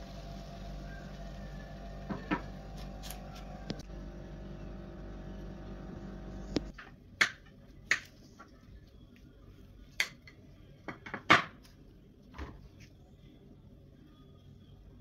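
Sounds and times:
low hum: 0.0 - 6.7.

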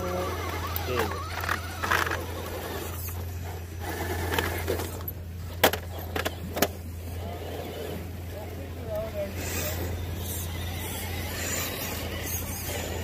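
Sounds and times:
toy truck scraping over rock: 0.0 - 8.1.

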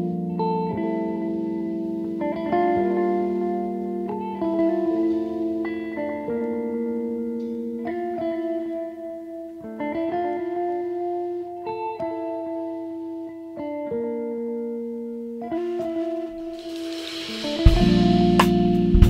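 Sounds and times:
slow plucked melody: 0.0 - 19.0.

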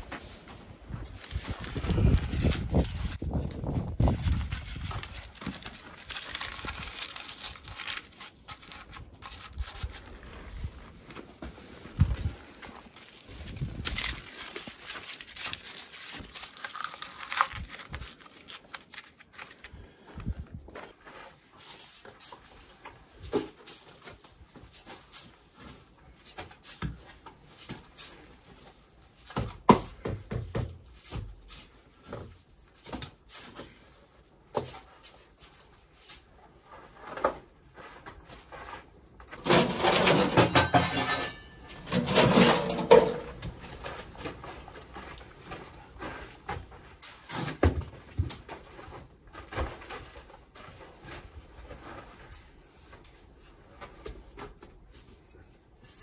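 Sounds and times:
tools scraping and knocking: 39.2 - 44.2.

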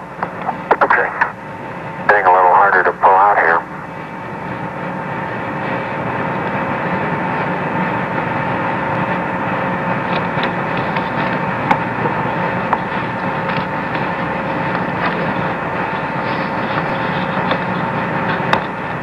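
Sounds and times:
radio static hiss: 0.3 - 4.1, 15.4 - 18.5
steady radio tones: 0.3 - 4.6, 14.0 - 19.0.

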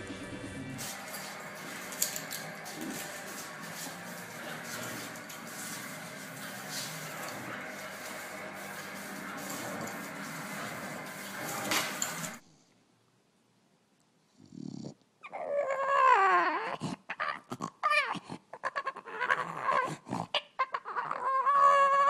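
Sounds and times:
dog whining and grumbling: 14.4 - 22.0.

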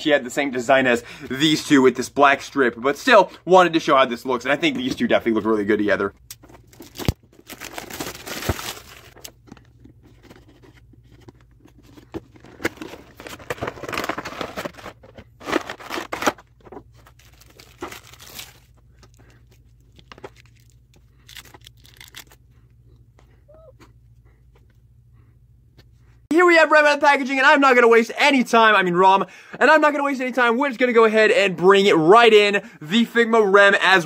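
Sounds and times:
plastic packaging crinkling: 6.4 - 22.4.

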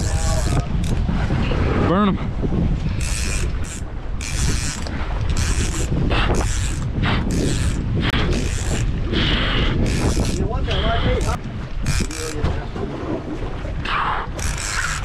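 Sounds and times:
wind rumble on microphone: 0.0 - 15.0
fishing reel drag buzzing: 3.0 - 8.9, 9.8 - 10.4, 11.2 - 12.4, 14.4 - 15.0.

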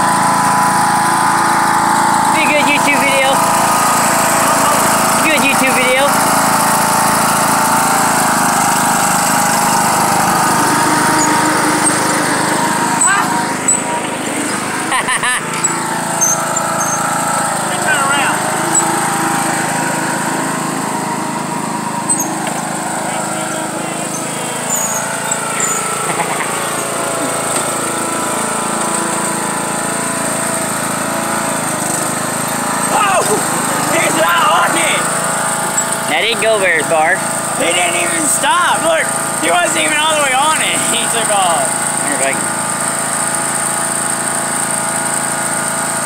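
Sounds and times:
lawn tractor engine running: 0.0 - 46.0.

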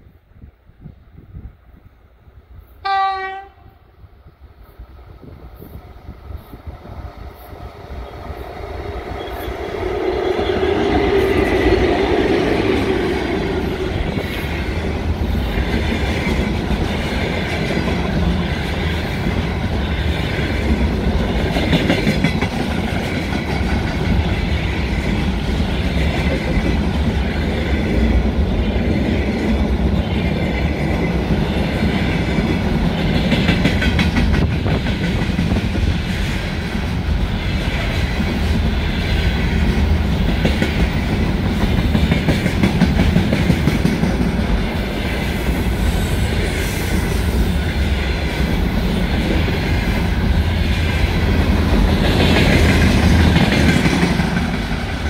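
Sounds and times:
electric locomotive passing: 0.8 - 55.0
freight cars clickety-clack: 15.1 - 27.6, 31.8 - 36.3, 39.6 - 44.6, 51.3 - 55.0.

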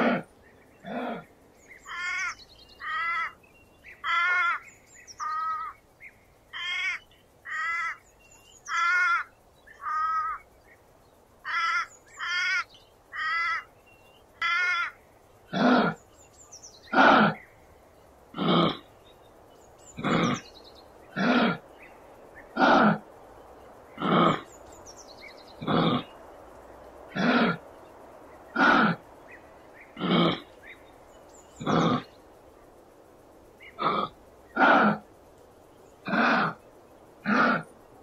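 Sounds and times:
kangaroo calling: 0.0 - 4.6, 20.0 - 20.5, 31.6 - 32.1, 33.6 - 35.1, 36.0 - 36.6, 37.2 - 37.7.

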